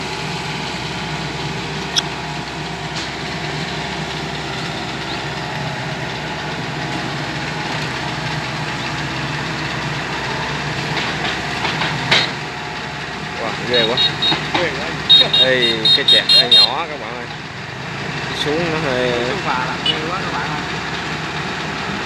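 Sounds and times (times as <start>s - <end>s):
combine harvester diesel engine: 0.0s - 22.0s
sharp click: 1.9s - 2.1s.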